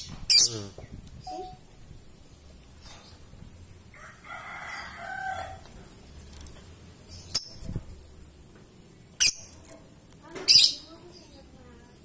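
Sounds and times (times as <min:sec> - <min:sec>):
rooster crowing: 0:03.9 - 0:05.6.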